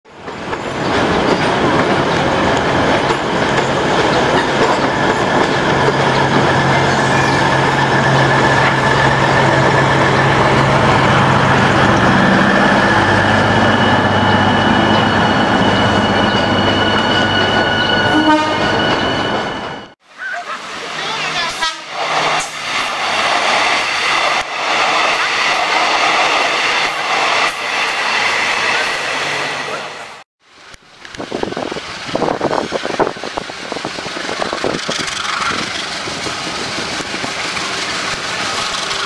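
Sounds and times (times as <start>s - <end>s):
diesel train engine droning: 0.2s - 39.0s
train wheels clicking: 31.0s - 39.0s.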